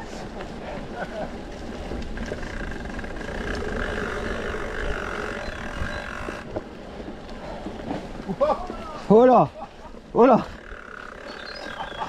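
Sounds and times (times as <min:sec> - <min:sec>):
wind on microphone: 0:00.0 - 0:08.9
bike tyre rumble on dirt: 0:00.0 - 0:12.0
steady buzz: 0:02.4 - 0:06.5.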